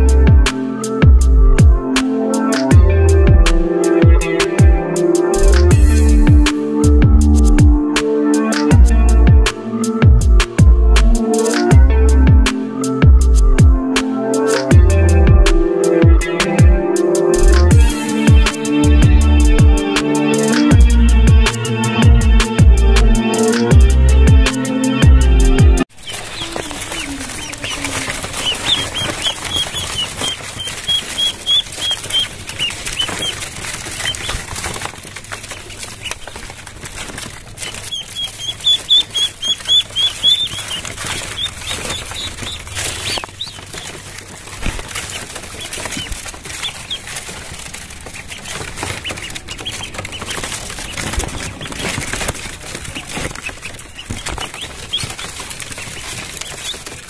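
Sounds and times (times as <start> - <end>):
ducklings peeping: 0.0 - 57.0
pecking clicks on tarp: 6.4 - 8.8, 11.0 - 11.8, 14.0 - 14.8, 19.8 - 20.8, 25.9 - 57.0.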